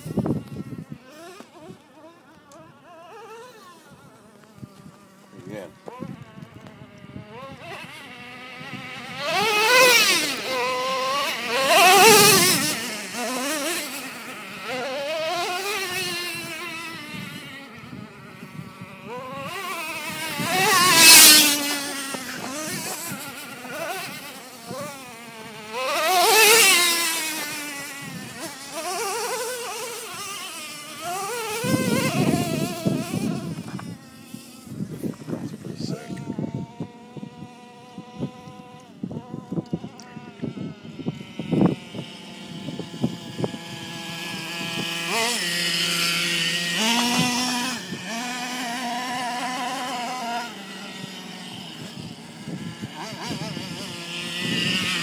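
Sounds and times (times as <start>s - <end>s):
toy truck motor buzzing: 0.0s - 55.0s.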